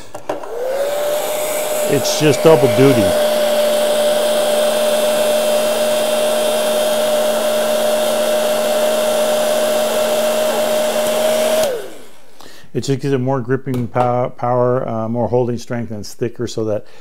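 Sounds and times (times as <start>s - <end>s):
heat gun blowing air: 0.0s - 12.4s
fan winding down: 0.2s - 12.3s.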